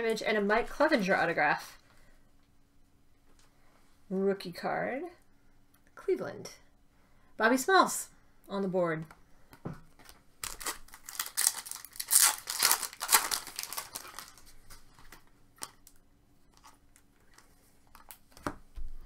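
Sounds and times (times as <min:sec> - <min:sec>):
paper and card rustling: 0:10.0 - 0:15.8
card pack wrapper tearing: 0:10.4 - 0:18.2.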